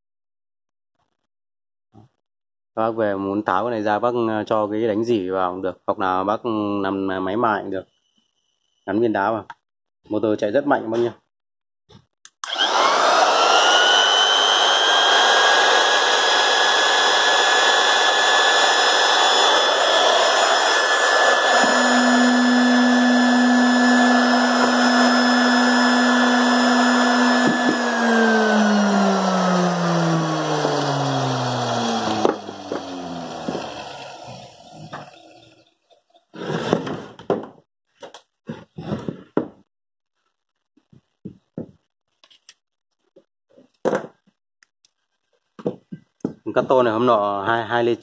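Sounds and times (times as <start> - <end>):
electric motor whine: 12.4 - 35.6
knock: 36.7 - 37.6, 38.8 - 39.6, 43.8 - 44.2.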